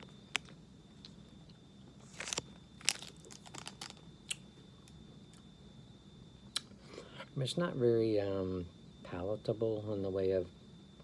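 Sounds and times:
person chewing: 2.0 - 4.4.

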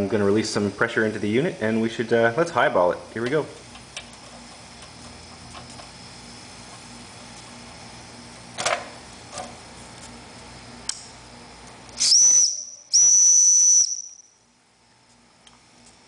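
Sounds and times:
steam whistle tooting: 12.0 - 14.2.

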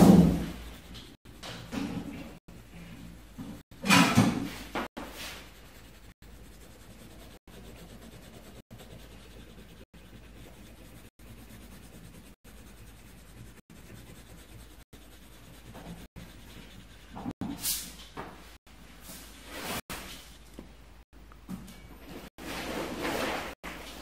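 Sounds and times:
pencil scratching on paper: 0.0 - 3.0, 4.1 - 17.5.

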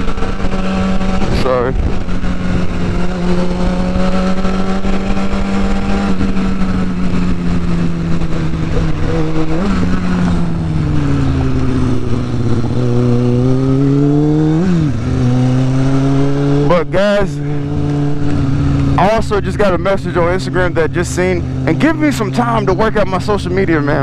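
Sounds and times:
dirt bike engine: 0.0 - 24.0.

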